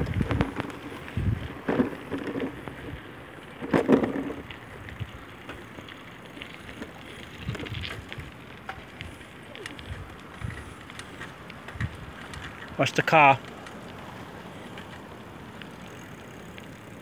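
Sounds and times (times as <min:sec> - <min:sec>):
wind on microphone: 0:00.0 - 0:01.7, 0:07.3 - 0:08.4, 0:09.8 - 0:10.8, 0:11.7 - 0:12.6
rolling road noise: 0:00.0 - 0:17.0.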